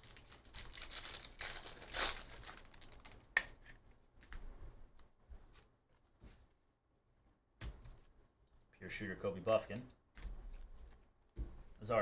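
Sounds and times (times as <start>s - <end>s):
foil wrapper crinkling and tearing: 0.0s - 3.4s.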